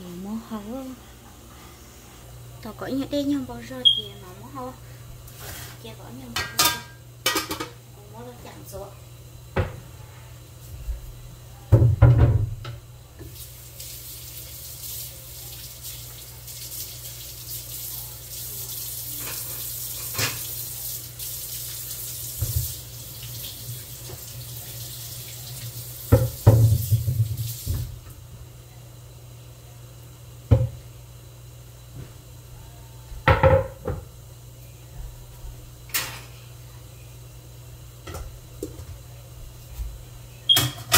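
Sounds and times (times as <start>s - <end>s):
kitchen tap running into sink: 13.2s - 28.1s.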